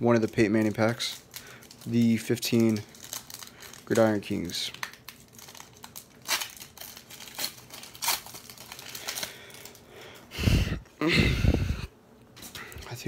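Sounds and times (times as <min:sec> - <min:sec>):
foil wrapper crinkling: 0:00.0 - 0:10.3
cards rustling: 0:00.2 - 0:10.2.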